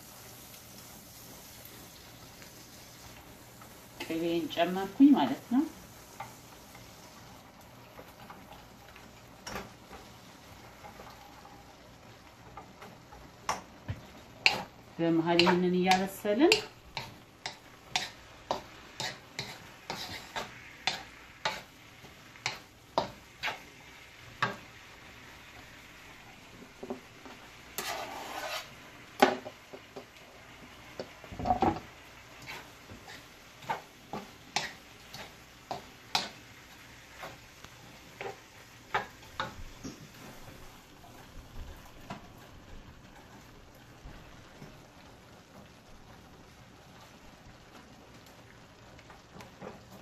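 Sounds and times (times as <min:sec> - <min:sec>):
faint sizzle: 0:00.0 - 0:50.0
spatula scraping and tapping wok: 0:00.1 - 0:07.2, 0:12.4 - 0:30.2, 0:30.8 - 0:42.5
whisk stirring in saucepan: 0:15.4 - 0:23.8, 0:27.7 - 0:29.3, 0:32.4 - 0:39.5.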